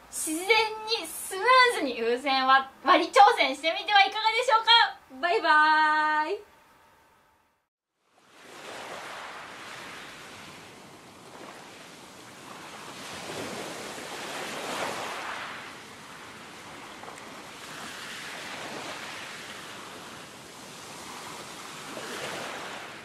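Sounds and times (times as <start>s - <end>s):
sea waves washing in: 8.0s - 23.0s.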